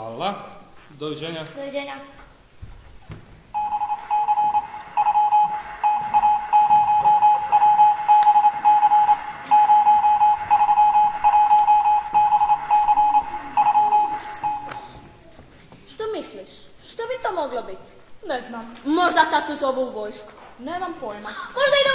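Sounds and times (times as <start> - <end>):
telegraph beep tone: 3.6 - 15.0.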